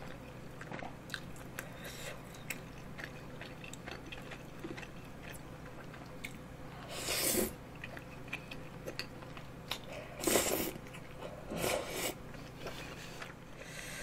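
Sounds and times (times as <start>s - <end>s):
wet chewing clicks: 2.3s - 6.4s.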